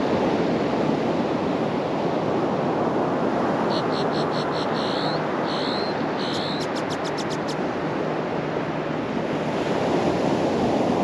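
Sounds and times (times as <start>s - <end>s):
ocean surf washing onto beach: 0.0s - 11.0s
high swooping chirps: 3.7s - 7.6s.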